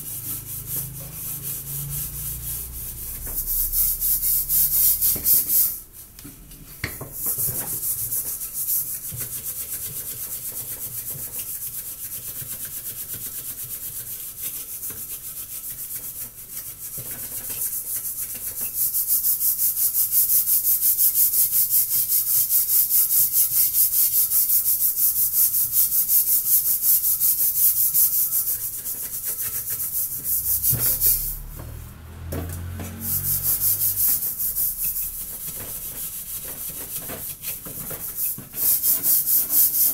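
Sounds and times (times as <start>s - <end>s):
scrubbing steel pot: 0.0s - 6.0s, 24.6s - 32.0s, 32.6s - 39.9s.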